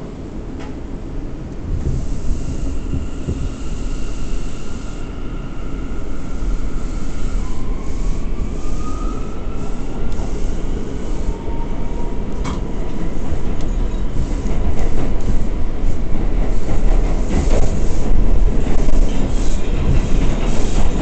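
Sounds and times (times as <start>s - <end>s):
subway train wheels rumbling on track: 0.0s - 21.0s
rail clicks: 0.6s - 0.8s, 9.4s - 21.0s.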